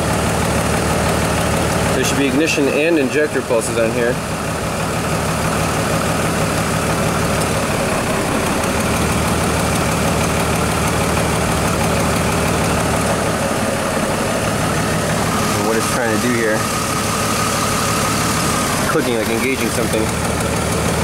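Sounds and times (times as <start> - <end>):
engine idling with misfire: 0.0 - 21.0.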